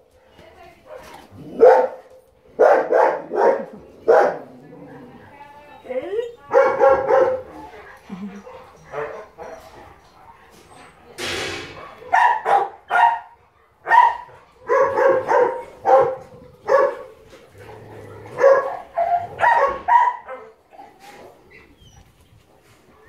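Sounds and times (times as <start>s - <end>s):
dog barking and yipping: 1.5s - 2.0s, 2.6s - 4.5s, 6.5s - 7.5s, 11.8s - 17.1s, 18.4s - 20.6s.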